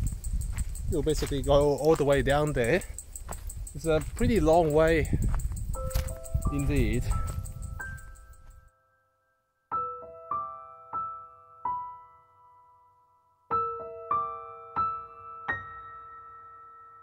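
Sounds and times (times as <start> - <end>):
slow solo piano melody: 9.7 - 12.9, 13.5 - 17.0.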